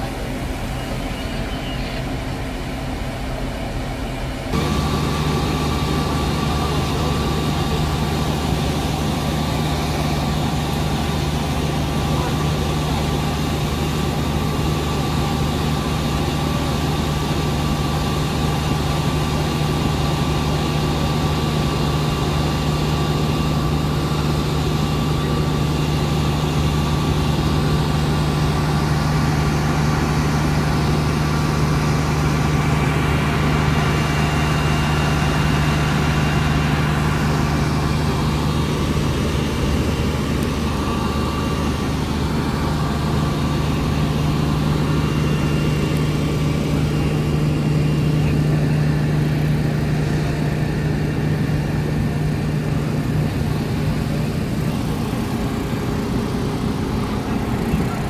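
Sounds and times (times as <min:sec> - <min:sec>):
fire truck engines running: 0:00.0 - 0:58.0.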